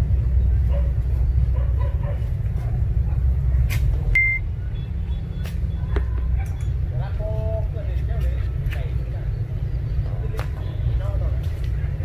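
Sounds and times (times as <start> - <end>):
high beep: 4.2 - 4.9.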